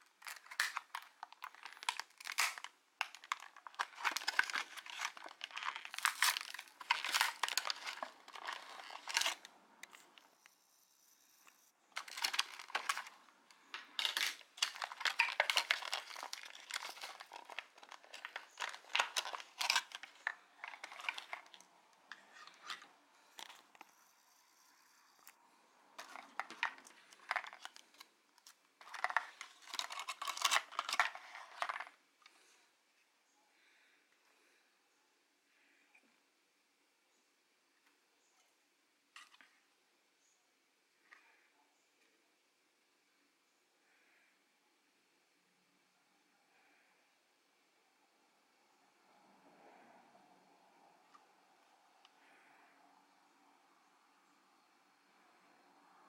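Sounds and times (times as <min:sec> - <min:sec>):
plastic packaging crinkling: 0:00.0 - 0:10.3, 0:11.9 - 0:23.9, 0:26.0 - 0:32.0.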